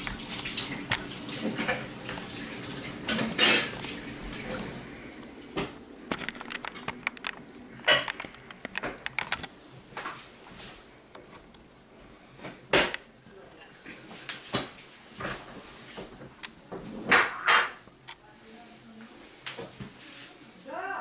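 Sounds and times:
utensils clinking and scraping cookware: 3.1 - 4.0.

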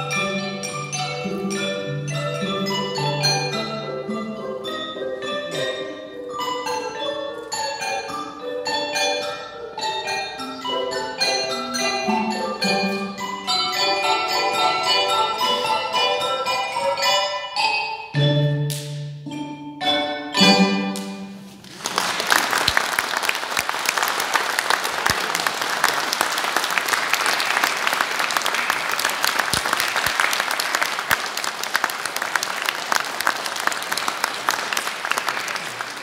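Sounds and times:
audience applause: 21.6 - 36.0.

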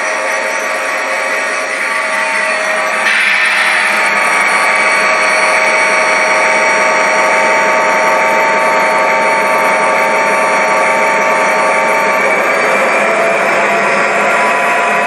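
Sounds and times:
model train running: 0.0 - 15.0
steady whine: 0.0 - 15.0.

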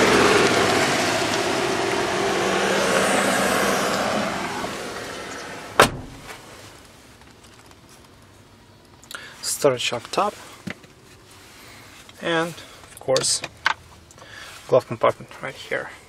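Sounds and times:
motor vehicle passing: 0.0 - 6.4
sharp thump: 5.7 - 6.4.

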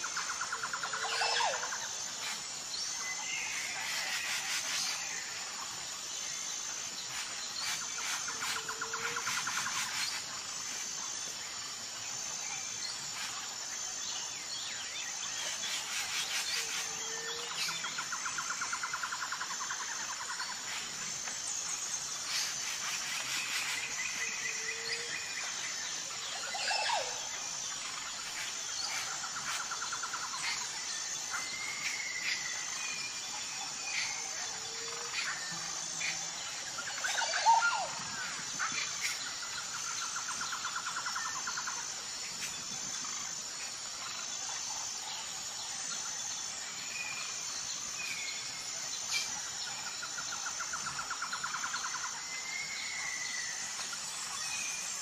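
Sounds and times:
pulsing insect chorus: 0.0 - 55.0.

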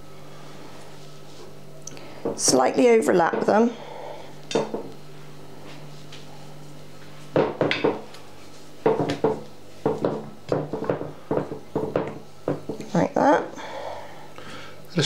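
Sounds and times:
low steady hum: 0.0 - 15.0
potato slices knocking on dish: 8.8 - 12.8.

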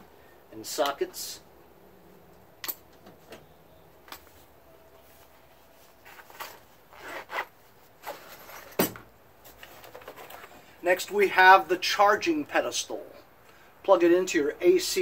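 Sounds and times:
zipper rasps: 6.0 - 8.3.

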